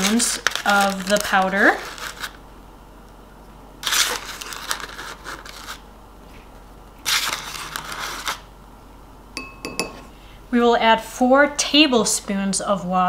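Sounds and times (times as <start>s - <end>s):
packaging rustling and crinkling: 0.0s - 2.4s, 3.8s - 5.8s, 7.0s - 8.4s.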